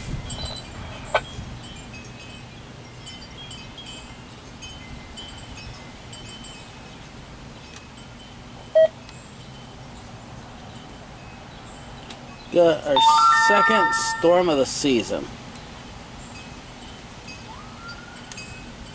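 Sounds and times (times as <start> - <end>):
wind chimes tinkling: 0.2 - 7.0, 10.7 - 15.2, 16.3 - 18.9
short loud tone: 13.0 - 14.6.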